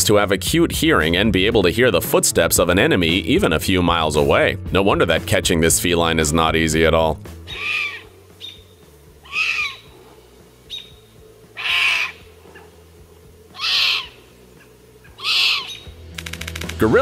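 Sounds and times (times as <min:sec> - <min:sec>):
kitten mewing: 0:07.5 - 0:08.1, 0:09.2 - 0:09.9, 0:13.6 - 0:14.2, 0:15.1 - 0:15.8.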